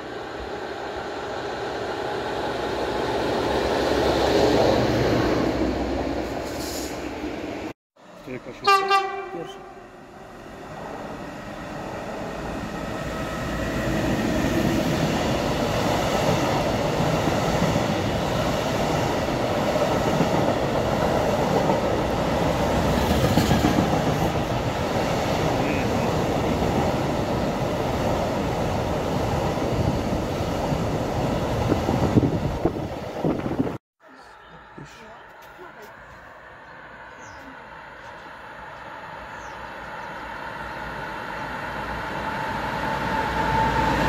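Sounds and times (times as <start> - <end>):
freight train wheels on rails: 10.4 - 33.8.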